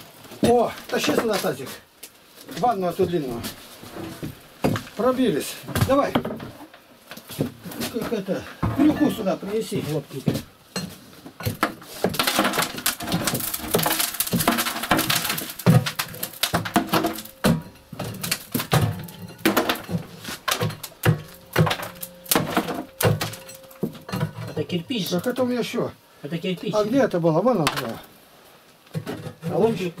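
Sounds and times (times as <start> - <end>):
knocks and thuds on brick: 10.3 - 24.7
rough scraping: 11.8 - 25.9.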